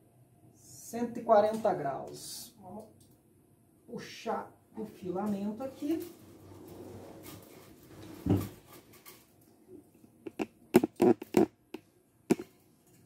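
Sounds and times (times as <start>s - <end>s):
sharp clicks and knocks: 10.3s - 12.6s.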